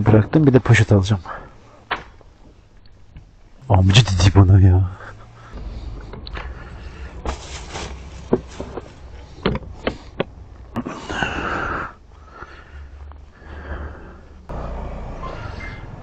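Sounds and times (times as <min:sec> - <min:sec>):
gloves rustling: 0:05.1 - 0:14.2.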